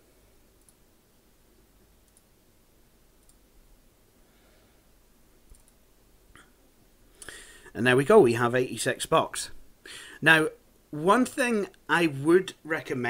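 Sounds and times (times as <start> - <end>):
computer mouse clicks: 0.6 - 0.8, 2.0 - 2.3, 3.2 - 3.4, 5.5 - 5.8.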